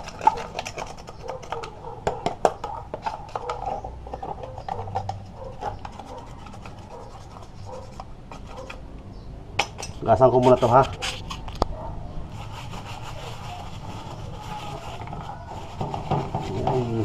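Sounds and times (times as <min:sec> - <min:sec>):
metal tool scraping metal: 0:09.6 - 0:11.5.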